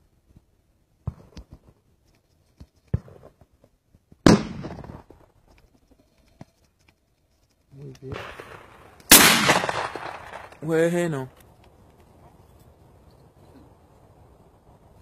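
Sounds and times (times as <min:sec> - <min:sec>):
close shotgun shot with echo: 0:04.2 - 0:05.0, 0:08.1 - 0:10.6
distant gunshots: 0:04.2 - 0:05.1, 0:08.1 - 0:10.6.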